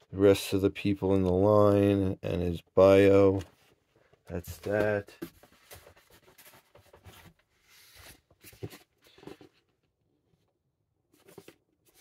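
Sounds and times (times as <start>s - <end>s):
cardboard boxes rustling and knocking: 4.3s - 9.8s.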